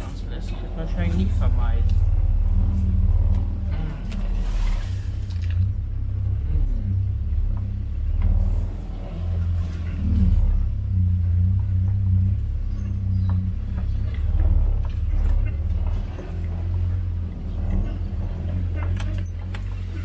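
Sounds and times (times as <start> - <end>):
vehicle engine at low revs: 0.0 - 20.0
vehicle rattles and knocks: 0.0 - 20.0.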